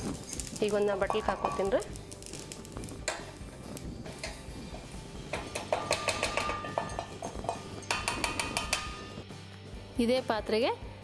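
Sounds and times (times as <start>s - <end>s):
steel pan ringing: 0.3s - 1.9s, 4.0s - 9.2s.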